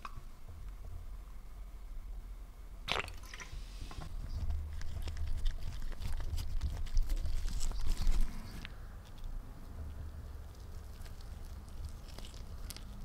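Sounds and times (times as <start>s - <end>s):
rubber gloves rubbing: 3.6s - 8.7s.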